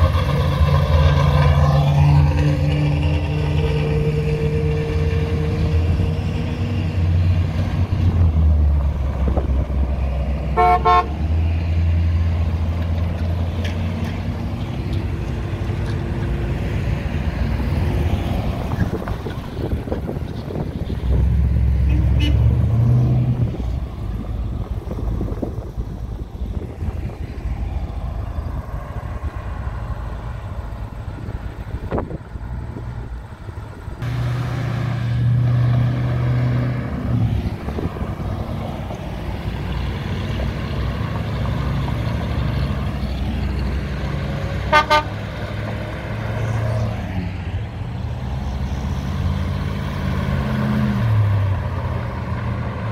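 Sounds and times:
cars driving past: 0.0s - 52.9s
loud vehicle passing: 0.0s - 52.9s
car horn toot: 10.6s - 11.2s, 21.8s - 22.6s, 44.7s - 45.2s.

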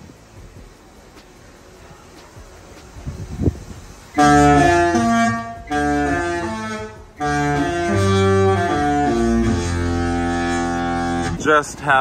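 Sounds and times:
musical ship horn: 4.1s - 11.4s.

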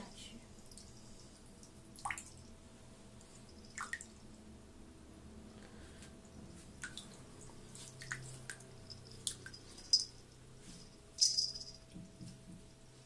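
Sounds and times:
faint steady hum: 0.0s - 13.0s
water dripping from tap into basin: 1.6s - 2.5s, 3.6s - 4.3s, 6.8s - 9.6s.

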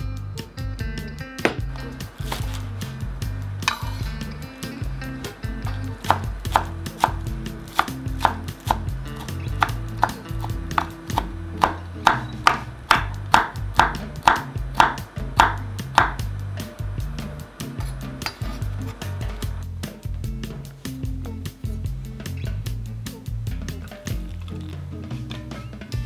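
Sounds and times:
knife chopping on wooden board: 1.4s - 2.7s, 5.7s - 16.3s.

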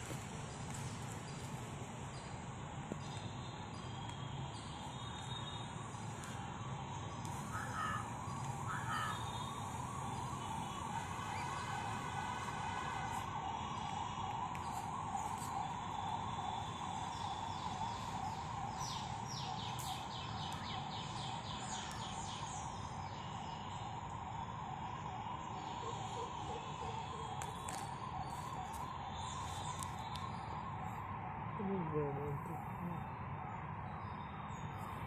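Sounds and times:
birds chirping: 7.3s - 11.6s.

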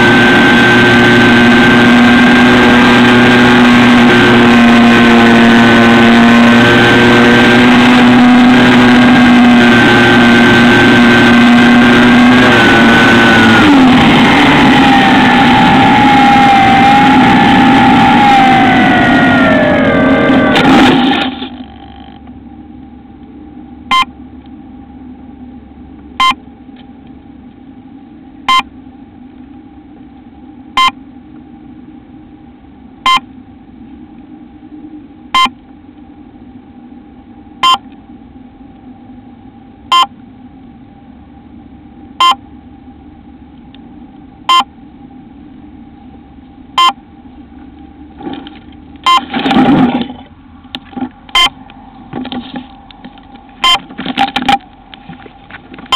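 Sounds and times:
low electrical hum: 0.0s - 55.9s
burst of loud noise: 12.8s - 21.6s
short electronic beeps: 23.9s - 24.2s, 26.2s - 26.4s, 28.5s - 28.7s, 30.8s - 31.0s, 33.0s - 33.3s, 35.3s - 35.6s, 37.6s - 37.9s, 39.9s - 40.2s, 42.2s - 42.4s, 44.5s - 44.7s, 46.8s - 47.0s, 49.0s - 49.3s, 51.3s - 51.6s, 53.6s - 54.6s.

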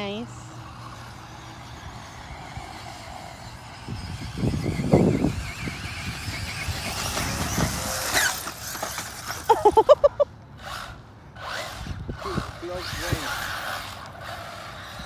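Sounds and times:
radio-controlled car motor whine: 0.0s - 9.6s, 10.6s - 15.0s
tyres scrabbling on dirt: 2.7s - 9.9s.

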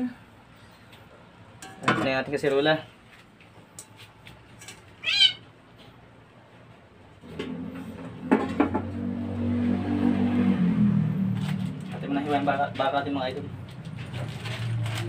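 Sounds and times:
cat meowing: 5.0s - 5.5s.

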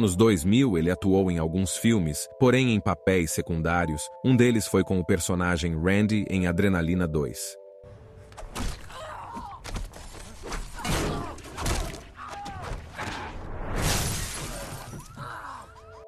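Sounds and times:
thuds and impacts: 9.6s - 15.1s
windshield glass shattering: 13.8s - 15.1s.

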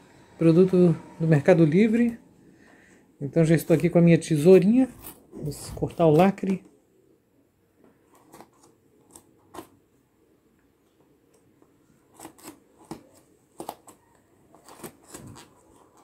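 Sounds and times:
tape and packaging crackling: 3.6s - 6.7s, 7.9s - 9.9s, 11.4s - 16.0s
scissors snipping tape: 12.1s - 16.0s.

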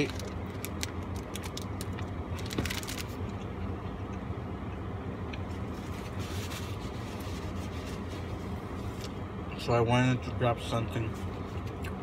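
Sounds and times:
paper wrapper crinkling: 0.0s - 3.2s
steady low hum: 0.0s - 12.0s.

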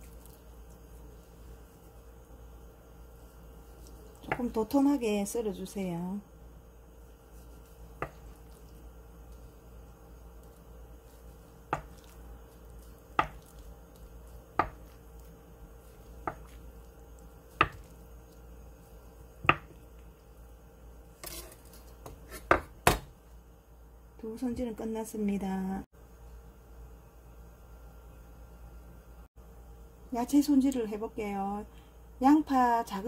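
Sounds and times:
knife slicing through tofu: 10.4s - 16.7s
knife knocking on wooden cutting board: 17.6s - 17.9s, 19.4s - 19.8s.

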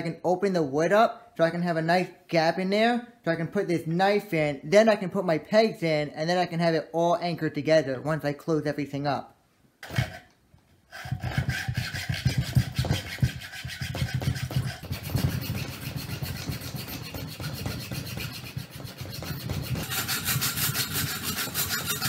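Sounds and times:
hacksaw cutting wood: 9.8s - 10.3s, 10.9s - 22.0s
handsaw strokes: 9.8s - 10.3s, 10.9s - 22.0s.

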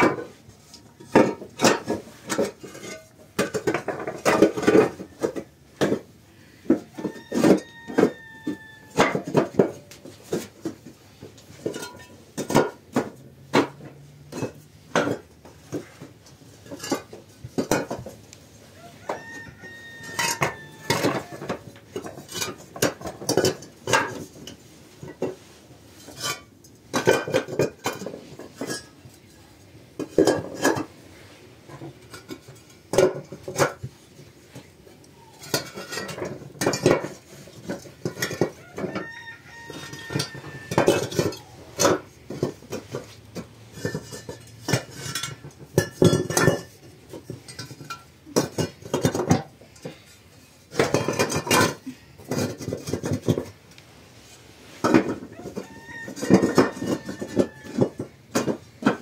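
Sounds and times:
clay bricks clinking together: 39.7s - 53.6s, 54.8s - 59.0s.

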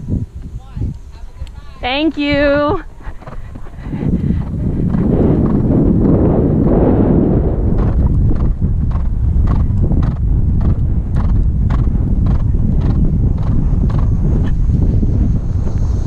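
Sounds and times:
wind on microphone: 0.0s - 16.0s
horse hoofbeats on turf: 2.5s - 6.4s.

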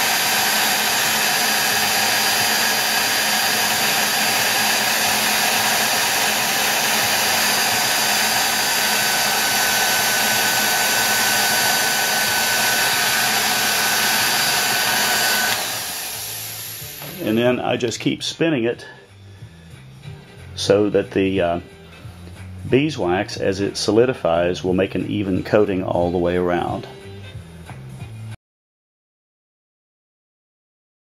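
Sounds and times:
heat gun blowing air: 0.0s - 17.5s
heat gun whine: 0.0s - 17.7s.

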